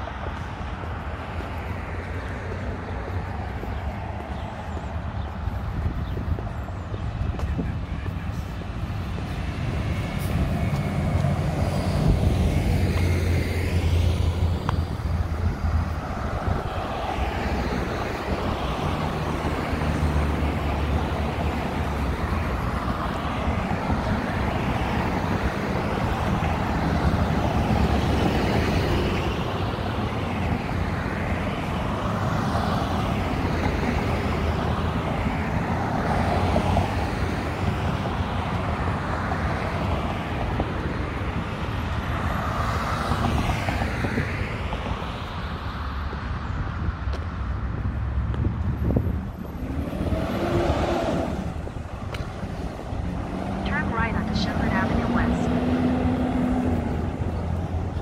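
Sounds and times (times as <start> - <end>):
cars passing with tyre noise: 0.0 - 58.0
heavy vehicle engine rumble: 51.3 - 58.0.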